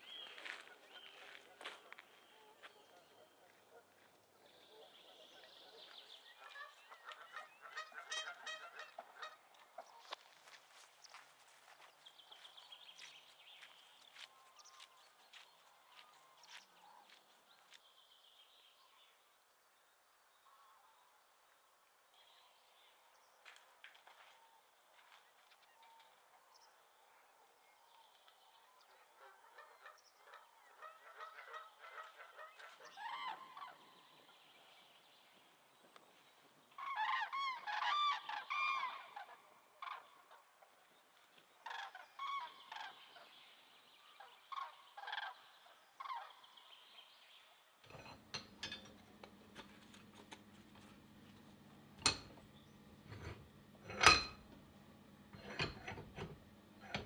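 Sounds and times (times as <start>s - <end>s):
flock of birds calling: 0.0s - 17.7s, 28.6s - 34.7s, 36.7s - 43.3s, 44.0s - 46.5s.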